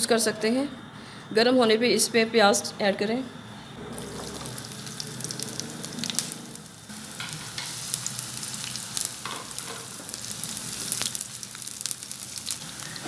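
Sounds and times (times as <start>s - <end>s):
onions sizzling in a pan: 3.9s - 13.0s.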